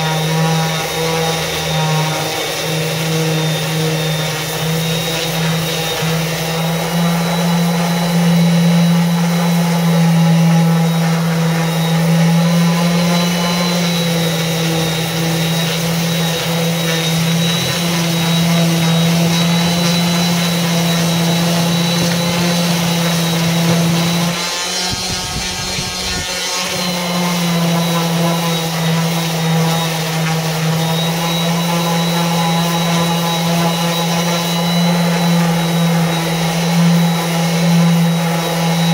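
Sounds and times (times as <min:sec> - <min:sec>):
orbital sander on wood: 0:00.0 - 0:38.9.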